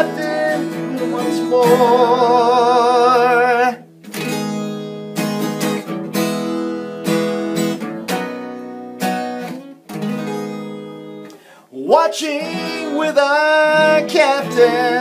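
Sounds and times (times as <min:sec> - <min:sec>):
person singing with vibrato: 0:00.0 - 0:03.9, 0:11.6 - 0:15.0
acoustic guitar strumming chords: 0:00.0 - 0:15.0.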